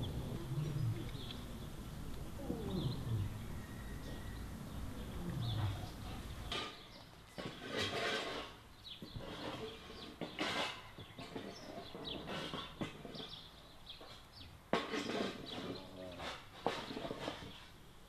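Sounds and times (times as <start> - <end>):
small birds chirping: 0.0 - 7.7, 8.6 - 17.8
rustles: 0.0 - 18.0.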